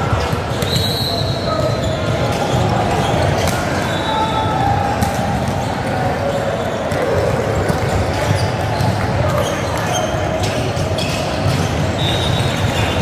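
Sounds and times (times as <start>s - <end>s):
murmur of voices: 0.0s - 13.0s
shoe squeaks on gym floor: 0.2s - 4.4s, 7.6s - 13.0s.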